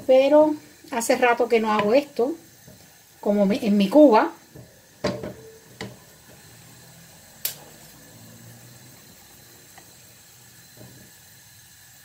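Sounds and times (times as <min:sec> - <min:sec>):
knock on frying pan: 0:01.7 - 0:02.0, 0:04.6 - 0:06.0.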